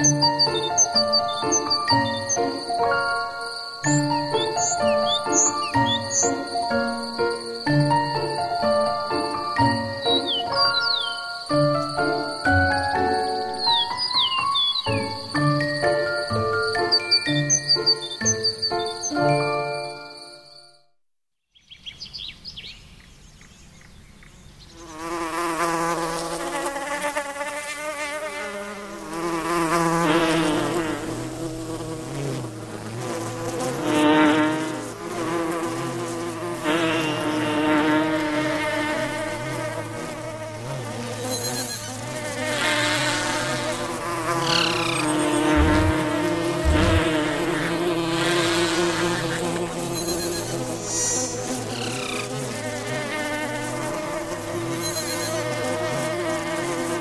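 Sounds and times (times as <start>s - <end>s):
flying insects buzzing: 0.0s - 20.4s, 23.7s - 57.0s
low thuds: 45.4s - 47.3s.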